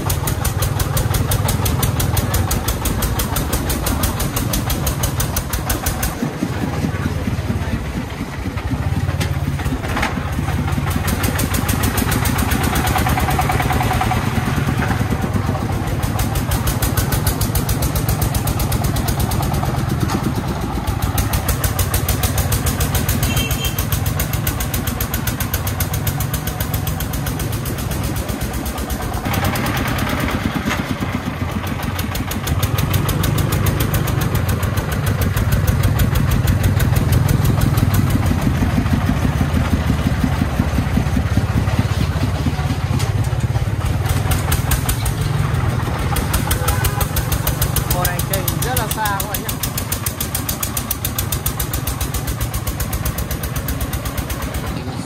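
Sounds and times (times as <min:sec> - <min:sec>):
diesel truck engine chugging: 0:00.0 - 0:55.0.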